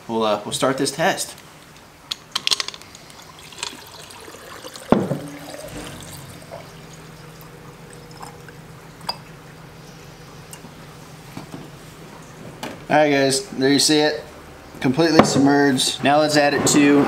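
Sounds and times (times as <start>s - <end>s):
liquid pouring into glass jar: 3.0s - 9.2s.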